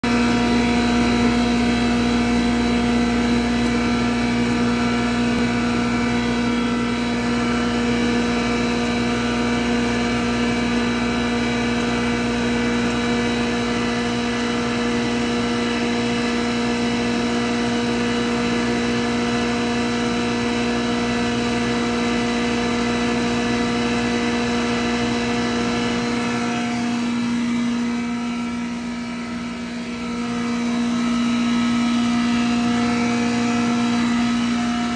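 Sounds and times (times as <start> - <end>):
straw grinder machine humming: 0.0 - 34.9.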